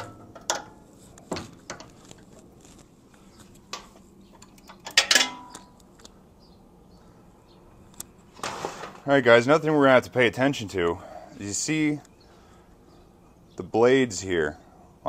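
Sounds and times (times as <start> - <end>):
scraping rustle: 0.7 - 4.1, 8.2 - 9.1
tool clatter with ring: 4.6 - 5.7
metal hand tools clinking: 4.8 - 5.7.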